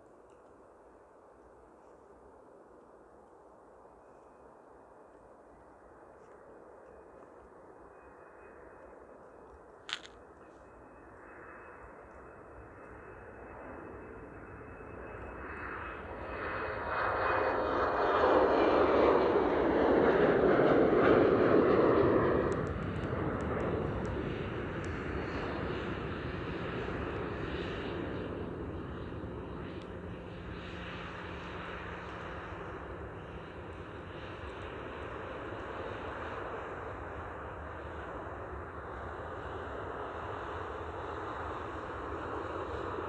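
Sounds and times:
jet engines taxiing: 4.0s - 43.0s
jet taking off: 15.8s - 43.0s.

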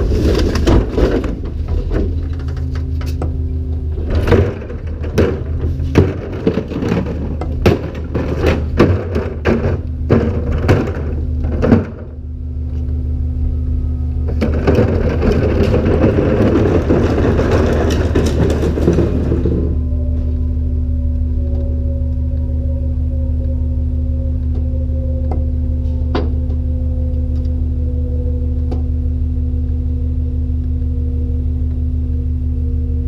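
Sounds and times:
loud churning noise: 13.5s - 23.4s
plastic cart rattling on asphalt: 14.4s - 19.8s.

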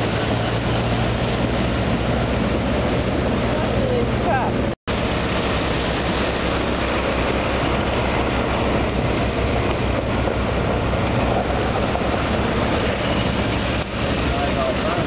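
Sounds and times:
rushing water: 0.0s - 15.0s
wind: 0.0s - 15.0s
tractor engine running: 4.9s - 15.0s.

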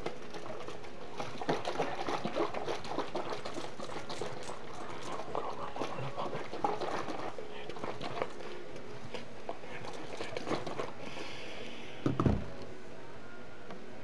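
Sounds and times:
water splashing pour: 0.0s - 8.5s, 9.8s - 11.0s.

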